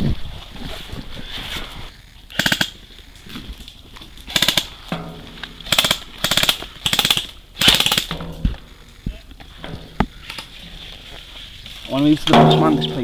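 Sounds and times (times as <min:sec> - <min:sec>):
airsoft gun bursts: 0:05.7 - 0:08.1.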